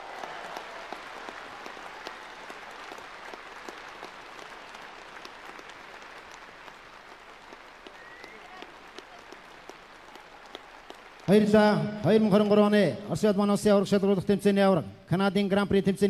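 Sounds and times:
audience applauding: 0.0 - 12.8.

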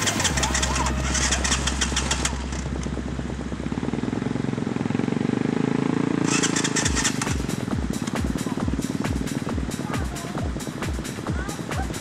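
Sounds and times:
rapid sharp ticking: 0.0 - 3.0, 6.2 - 12.0
quad bike engine running: 0.0 - 12.0.

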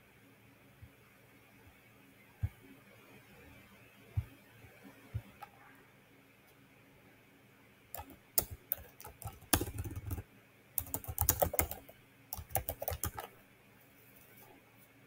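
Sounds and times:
keyboard typing: 8.0 - 10.2, 10.8 - 13.4.

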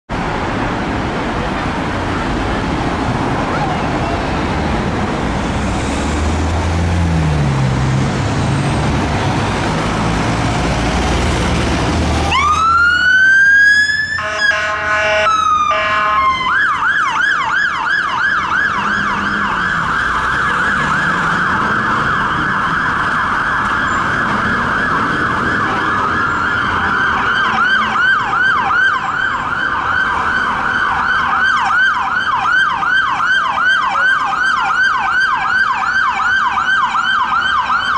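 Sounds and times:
diesel engine rumble: 0.1 - 13.6
fire engine siren: 6.0 - 37.9.

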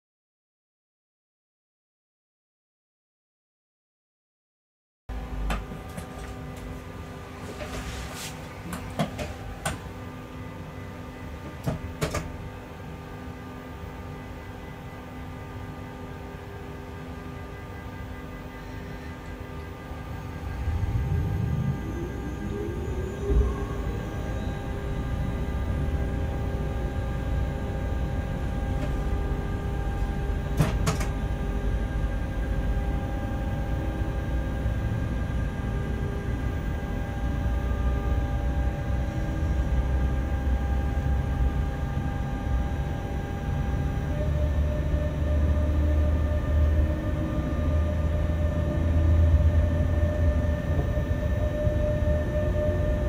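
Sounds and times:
locomotive cab hum: 5.1 - 53.0.

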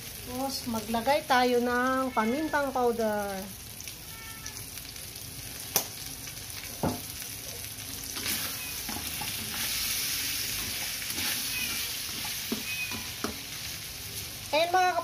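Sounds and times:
food sizzling in a wok: 0.0 - 15.0
spatula stirring and scraping: 8.0 - 13.8.

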